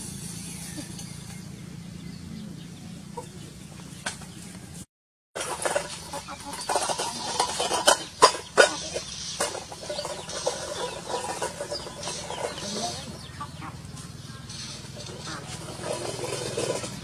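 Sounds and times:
rooster clucking and squawking: 3.0 - 3.8, 5.5 - 17.0.

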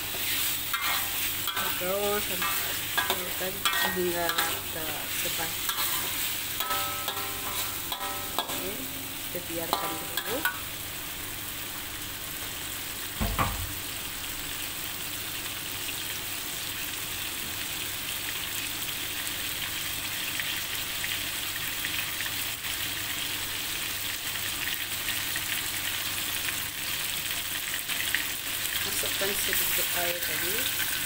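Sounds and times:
chicken sizzling in a wok: 0.0 - 31.0
dull thump: 13.2 - 13.7.

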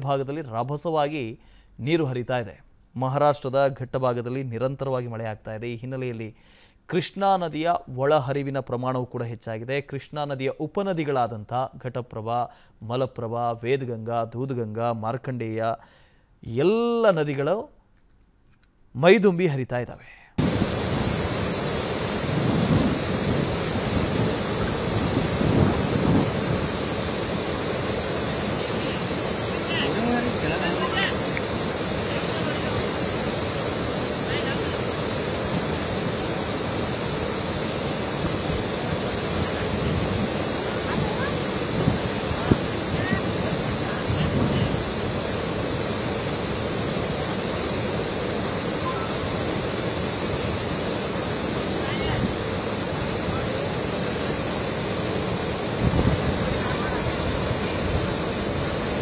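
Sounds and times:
river rushing in flood: 20.4 - 59.0.

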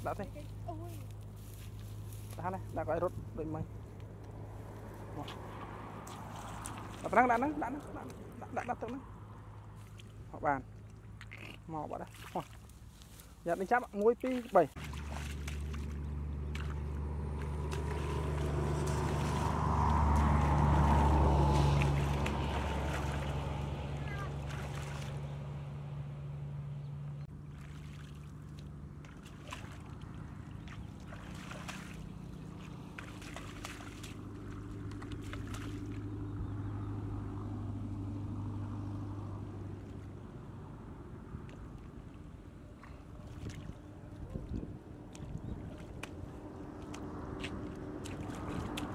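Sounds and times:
water splashing and clicking: 3.9 - 13.2, 13.8 - 23.6, 24.4 - 25.3, 27.4 - 36.3, 41.3 - 48.9
small engine droning: 14.5 - 48.9.

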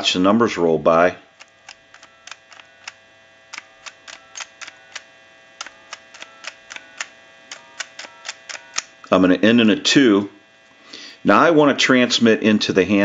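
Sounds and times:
faint steady hum: 0.0 - 13.0
telephone keypad button clicks: 1.4 - 8.9.

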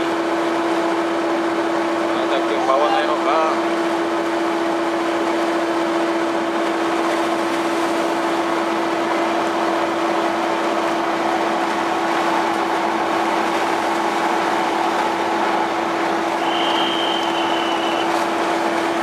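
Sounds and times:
deck machinery droning: 0.0 - 19.0.

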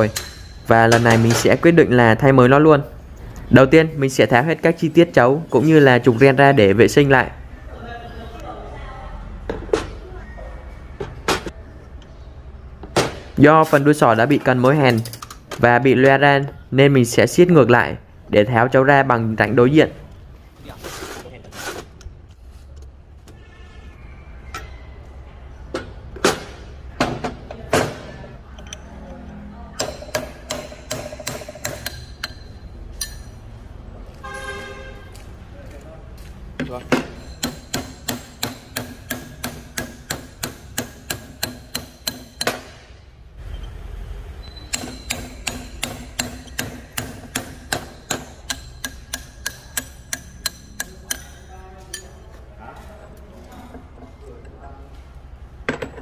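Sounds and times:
metal clicks and knocks: 14.4 - 16.2.

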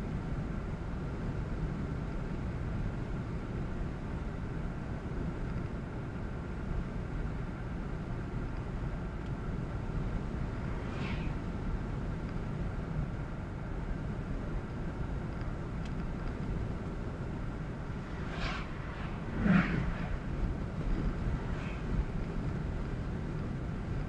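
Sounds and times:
car engine hum: 0.1 - 24.0.

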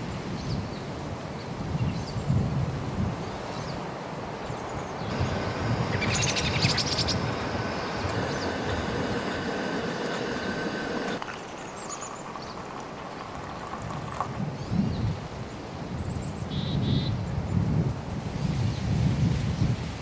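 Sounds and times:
bird chirps: 5.1 - 12.7
coffee pouring into mug: 5.1 - 14.4
percolator brewing coffee: 5.1 - 14.4.

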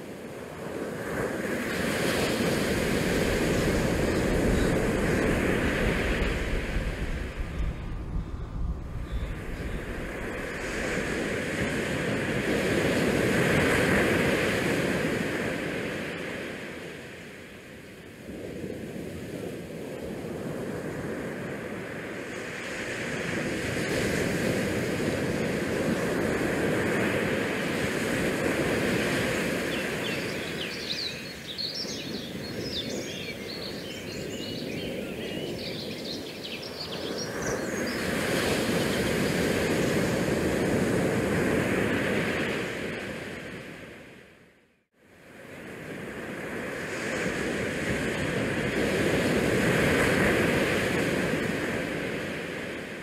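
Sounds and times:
rushing water along hull: 0.0 - 16.8
wind on microphone: 0.0 - 16.8, 18.2 - 44.2, 45.4 - 53.0.

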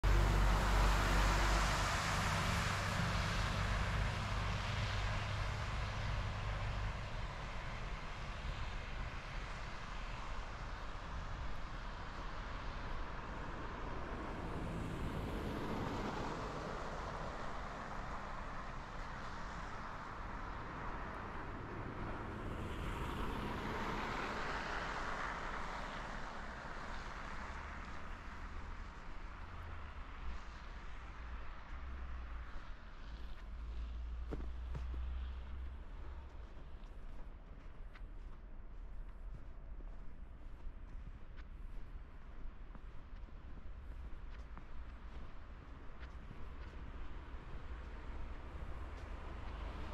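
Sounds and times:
car passing: 0.0 - 7.6, 12.2 - 49.9
vehicle engine and tyre noise: 0.0 - 49.9.

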